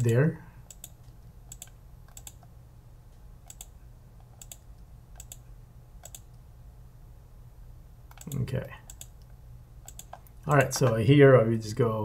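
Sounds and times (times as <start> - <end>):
faint low hum: 0.0 - 12.0
mouse clicks: 3.5 - 5.4, 6.0 - 6.4, 8.1 - 11.0.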